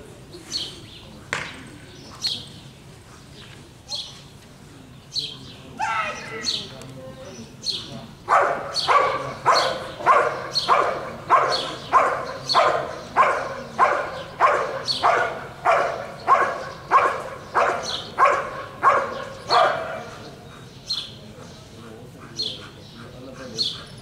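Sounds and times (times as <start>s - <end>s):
dog barking loudly: 8.3s - 20.3s.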